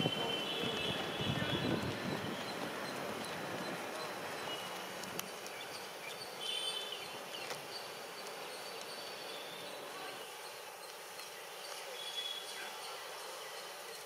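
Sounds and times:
outdoor background noise: 0.0s - 14.0s
faint clicks: 2.9s - 5.8s.

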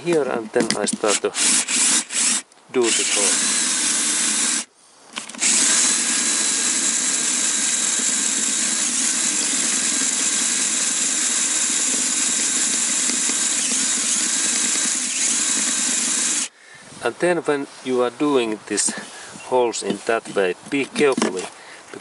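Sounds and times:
cordless drill boring through metal: 1.1s - 4.7s, 5.4s - 16.5s.

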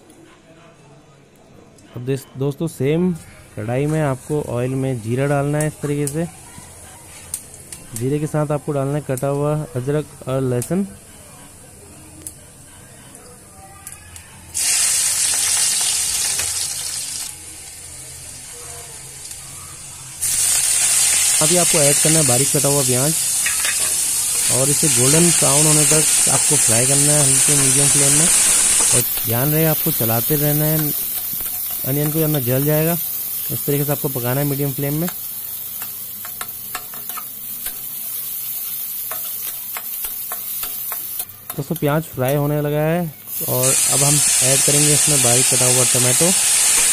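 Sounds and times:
food sizzling in hot oil: 14.6s - 46.9s.

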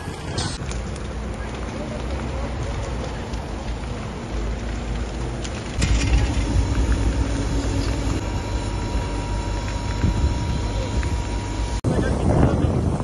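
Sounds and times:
fire hose water jet roar: 0.0s - 13.0s
thin steady whine: 5.5s - 12.8s.

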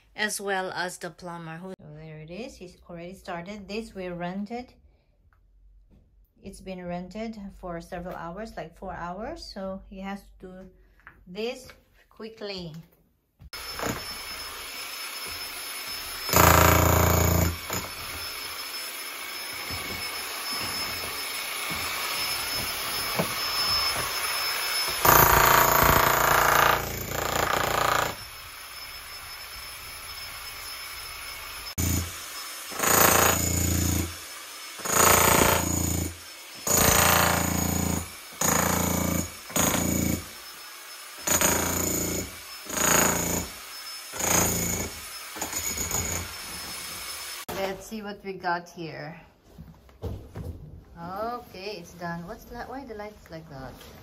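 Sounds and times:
demolition hammer breaking concrete: 16.2s - 18.3s, 24.8s - 28.2s, 31.8s - 34.2s, 34.8s - 40.4s, 41.2s - 46.3s.

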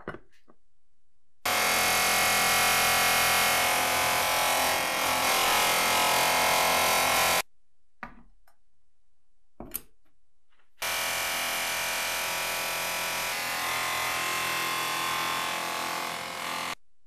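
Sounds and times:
bench grinder grinding metal: 1.5s - 7.4s, 10.8s - 16.8s.

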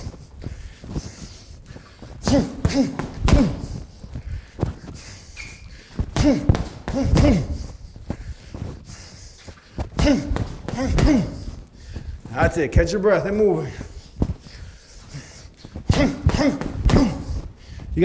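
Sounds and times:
person exhaling sharply: 0.0s - 8.2s, 14.5s - 17.9s
punches thudding on punching bag: 2.2s - 3.8s, 6.0s - 7.7s, 9.9s - 11.4s, 15.9s - 17.4s.

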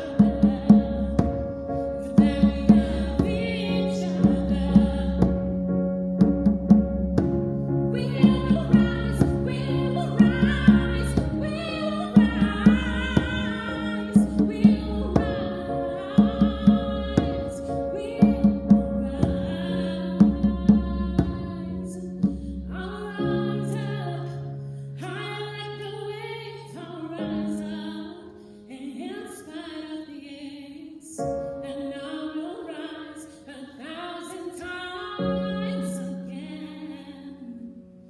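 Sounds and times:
woman singing: 0.0s - 5.7s, 7.9s - 37.9s
djembe drum strokes: 0.0s - 22.8s.

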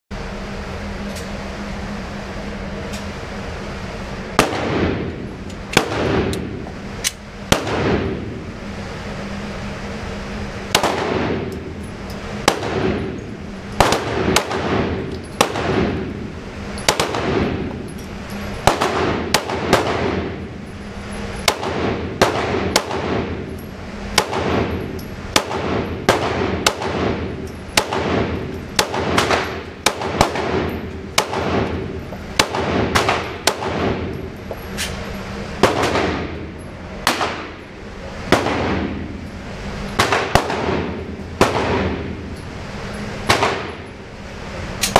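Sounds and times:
handgun shots indoors: 4.4s - 8.3s, 10.7s - 11.8s, 12.4s - 16.2s, 16.8s - 17.8s, 18.6s - 20.4s, 21.4s - 37.6s, 39.9s - 42.2s, 43.2s - 43.9s.

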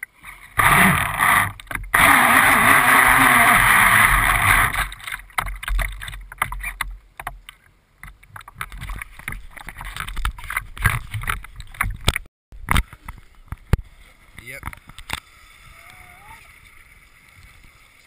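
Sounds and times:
water splashing against boat hull: 0.3s - 15.2s.

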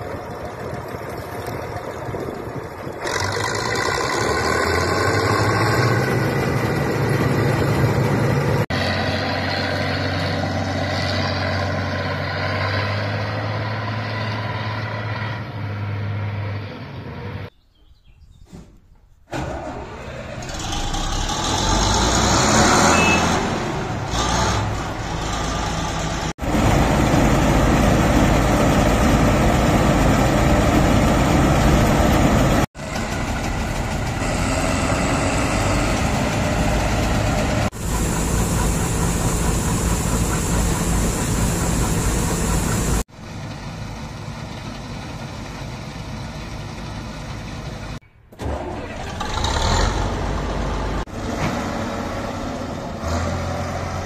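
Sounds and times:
combine harvester diesel engine running: 0.0s - 13.7s, 19.3s - 54.0s.

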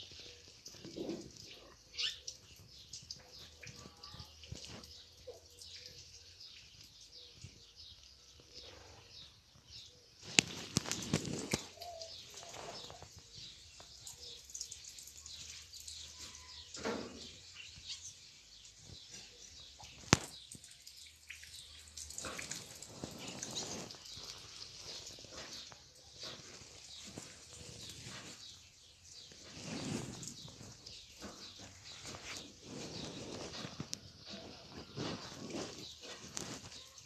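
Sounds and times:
kittens rustling on bedding: 22.8s - 37.0s.

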